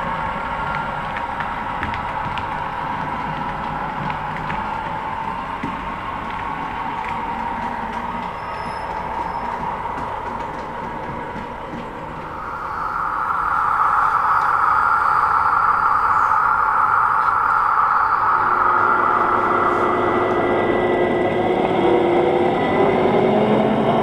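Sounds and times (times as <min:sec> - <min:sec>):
model locomotive engine: 0:00.0 - 0:24.0
low steady tone: 0:12.2 - 0:22.9.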